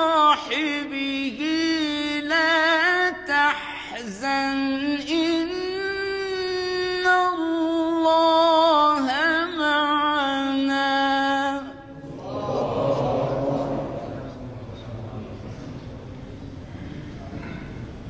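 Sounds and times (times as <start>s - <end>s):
man chanting: 0.0s - 15.7s
murmur of voices: 11.8s - 18.0s.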